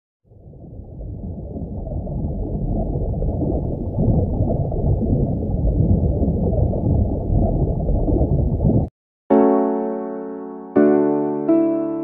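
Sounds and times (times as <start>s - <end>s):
muffled underwater water rumble: 0.2s - 8.9s.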